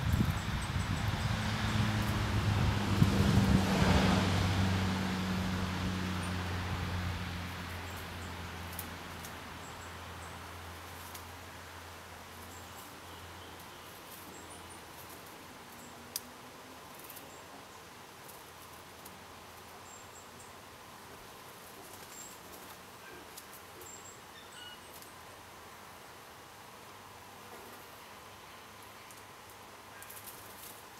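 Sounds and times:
steady outdoor hiss: 0.0 - 30.9
soft ticks: 16.1 - 16.3.

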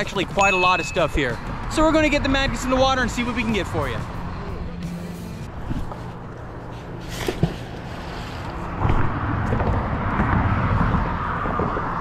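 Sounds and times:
vehicle passing: 1.2 - 12.0.

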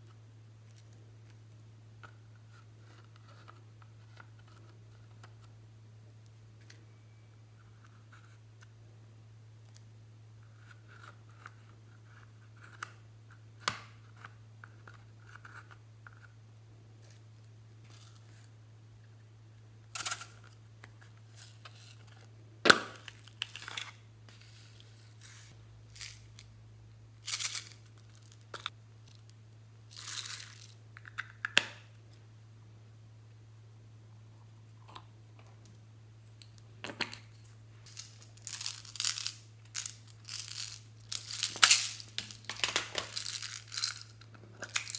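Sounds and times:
low steady hum: 0.0 - 44.9
plastic toys clicking and rustling: 37.9 - 44.9.

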